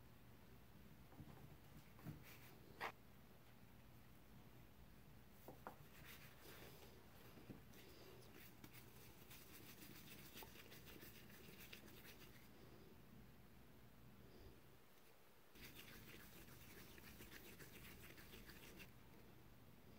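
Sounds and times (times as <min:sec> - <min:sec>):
dough rubbing on stone countertop: 0:05.4 - 0:06.9, 0:07.7 - 0:12.5, 0:15.6 - 0:18.9.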